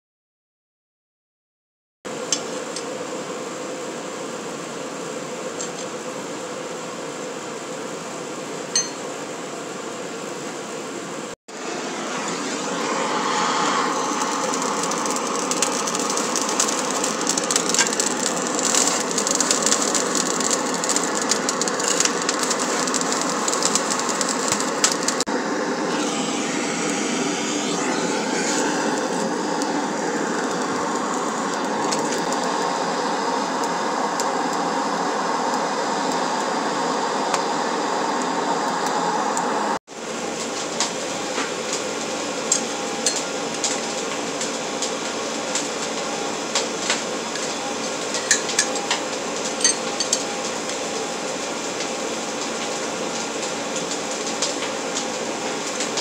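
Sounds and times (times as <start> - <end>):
gas torch flame blowing: 11.6 - 39.8
coal crackling and popping: 13.1 - 25.3, 42.5 - 56.0.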